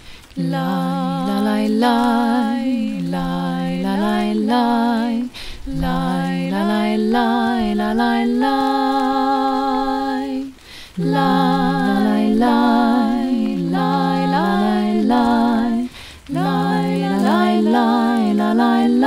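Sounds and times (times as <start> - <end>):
woman singing unaccompanied: 0.0 - 19.0
singer breathing: 5.3 - 5.7, 10.6 - 11.0, 15.9 - 16.3.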